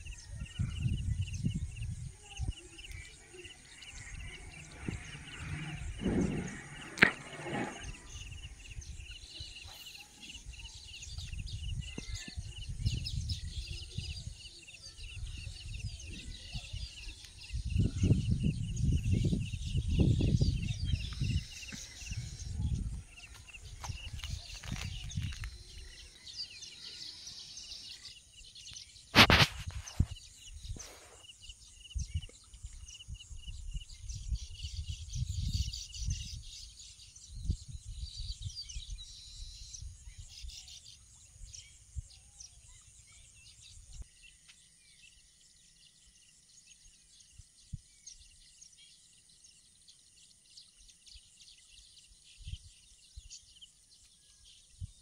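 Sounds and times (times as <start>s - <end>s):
birds chirping: 0.0s - 55.0s
low rumble: 3.9s - 9.2s.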